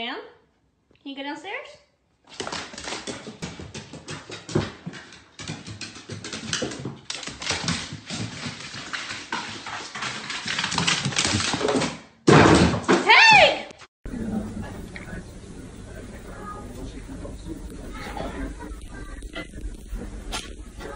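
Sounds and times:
dog claws clicking on wooden stairs: 2.3 - 12.0.

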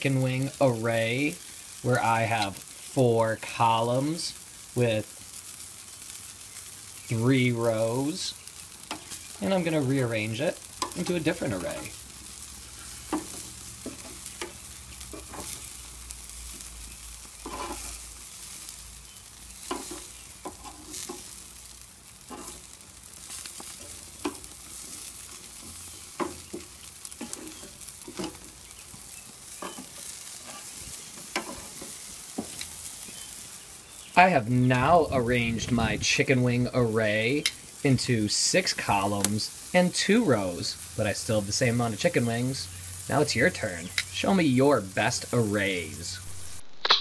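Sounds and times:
chicken wings sizzling on grill: 0.0 - 47.0
metal tongs clicking on grate: 10.8 - 11.9.

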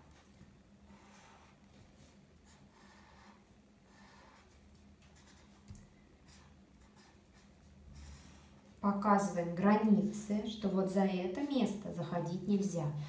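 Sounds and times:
marker scratching on paper: 0.8 - 8.7.

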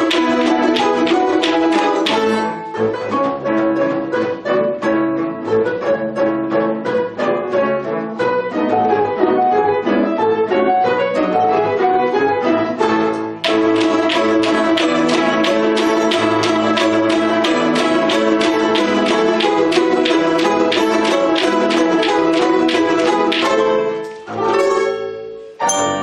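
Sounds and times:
balalaikas plucking and strumming: 13.4 - 26.0.

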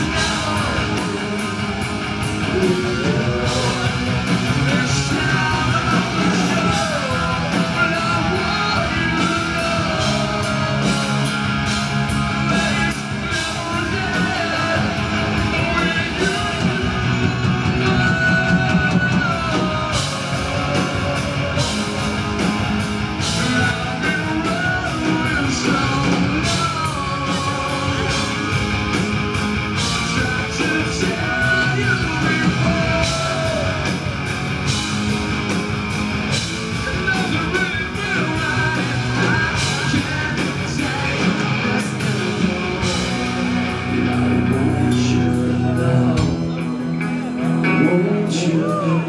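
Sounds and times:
person singing: 0.0 - 1.6, 2.4 - 11.1, 12.4 - 22.2, 23.2 - 28.8, 29.8 - 34.0, 36.8 - 49.0
drums with cymbal crashes: 0.0 - 44.0
bass guitar: 0.0 - 49.0
electric guitars: 0.0 - 49.0.

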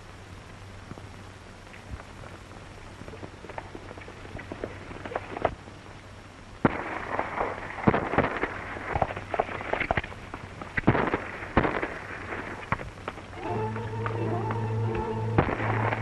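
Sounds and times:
gunshots: 6.6 - 9.1, 10.8 - 12.6, 15.4 - 16.0.

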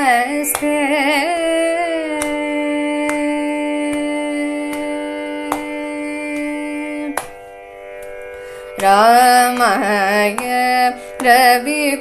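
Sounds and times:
hand taps: 5.5 - 5.7, 8.8 - 10.6.

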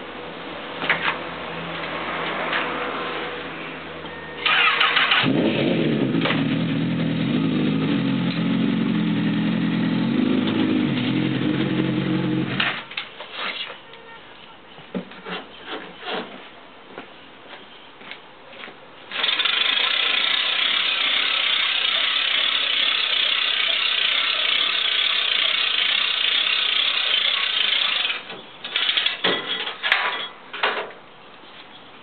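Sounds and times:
hand crank ratcheting clatter: 19.1 - 29.2.

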